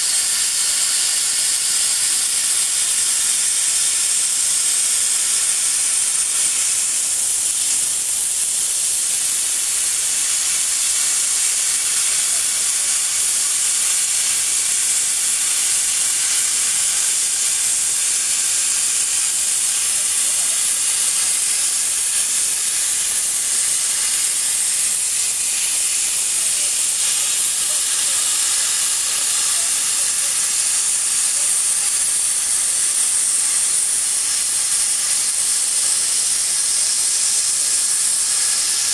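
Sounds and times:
plasma torch hissing: 0.0 - 38.9.

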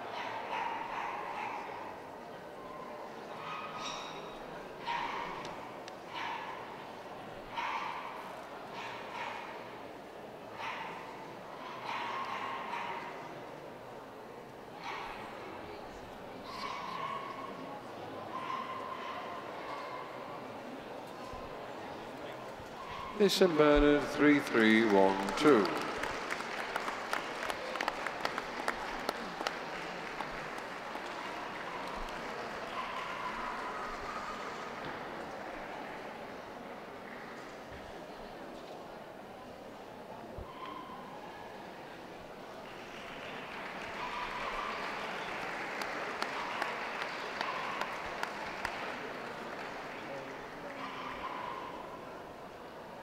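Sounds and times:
hall background noise: 0.0 - 53.0
audience clapping: 23.2 - 37.5, 42.5 - 51.3.

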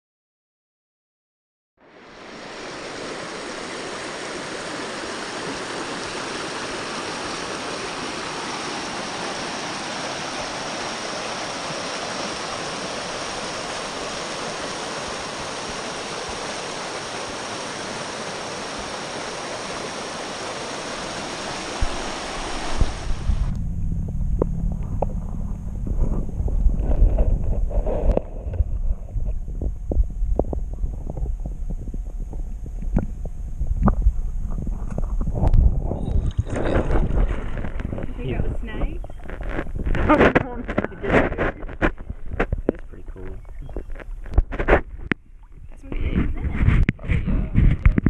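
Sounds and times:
flowing water rushing: 1.8 - 23.6, 35.4 - 46.9
wind buffeting microphone: 20.8 - 48.0.

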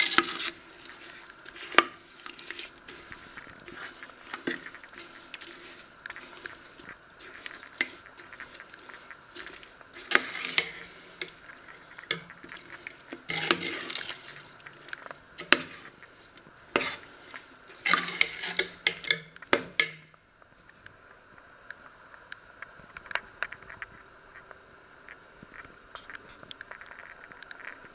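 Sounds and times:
spoon scraping a metal pot: 0.0 - 16.1, 16.7 - 20.0.

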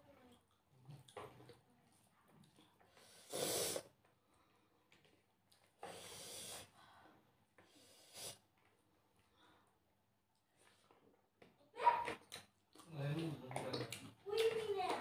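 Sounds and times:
person breathing and sniffing: 2.9 - 3.9, 5.8 - 8.5.

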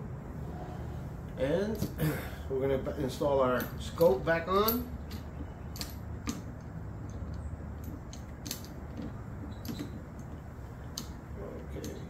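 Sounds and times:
low steady hum: 0.0 - 12.0
light metallic clicks and taps: 3.5 - 12.0.

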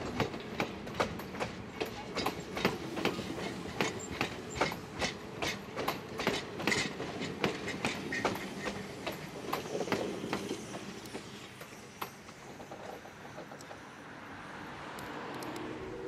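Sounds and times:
train wheels clicking over rail joints: 0.0 - 14.0
train rumble: 0.0 - 16.0.

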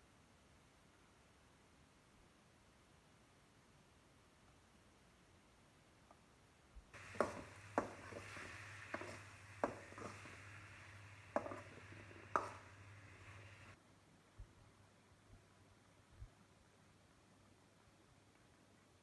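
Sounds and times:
spatula knocking against pan: 7.0 - 13.4
spatula stirring vegetables: 7.0 - 13.8
steady low hum: 7.0 - 13.8.

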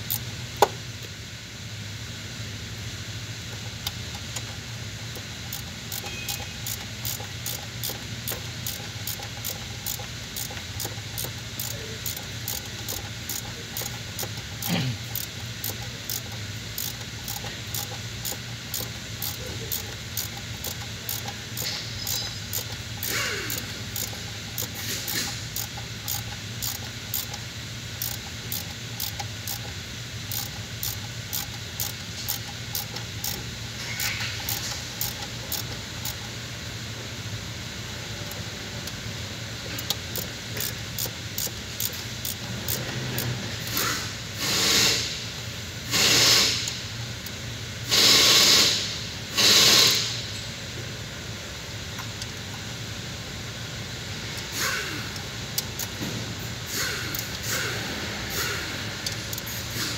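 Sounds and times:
ratchet wrench clicking: 0.0 - 1.1, 3.5 - 36.6, 38.1 - 50.4, 51.9 - 52.8, 54.4 - 59.9
short bursts of hissing: 43.7 - 45.3, 45.9 - 46.8, 47.9 - 50.2.

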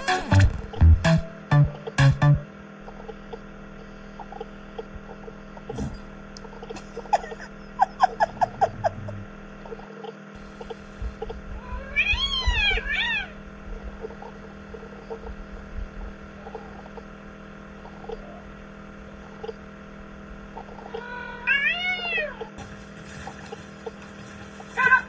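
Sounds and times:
cat meowing: 11.6 - 13.4, 20.8 - 22.5.

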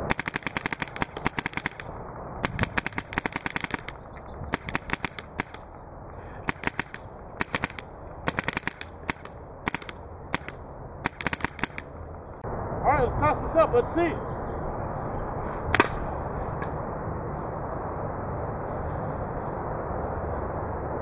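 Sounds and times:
paintball marker firing: 0.0 - 5.7, 6.4 - 11.9, 15.7 - 16.0.

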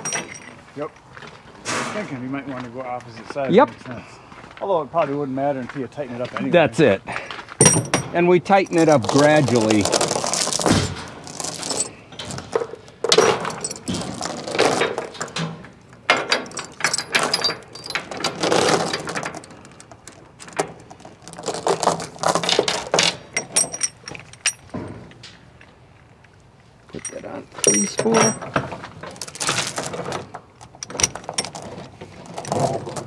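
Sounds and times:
chain rattling on wooden deck: 0.0 - 0.6, 7.6 - 25.2, 26.9 - 33.0
hooks and chain binder clanking: 0.0 - 0.7, 7.6 - 25.4, 26.9 - 33.0.

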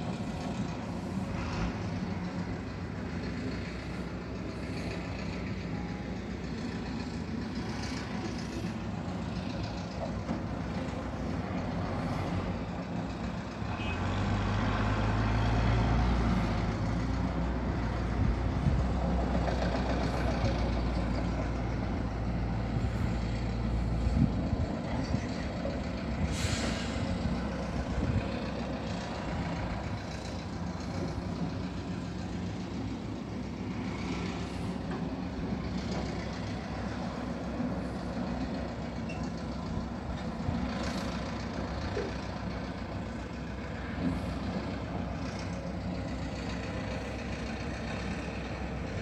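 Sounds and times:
low engine rumble: 0.0 - 49.0
short hisses: 26.3 - 27.1.

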